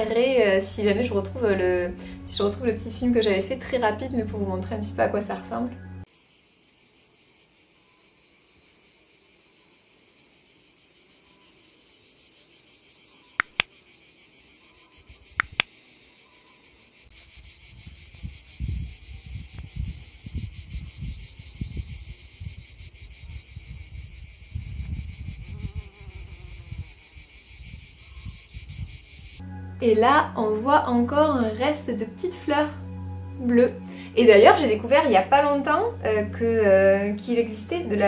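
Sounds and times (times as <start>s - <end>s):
insects chorus: 6.0s - 29.6s, 30.2s - 38.0s
sharp double clicks: 13.4s - 13.7s, 15.4s - 15.7s
wind buffeting microphone: 17.7s - 29.3s.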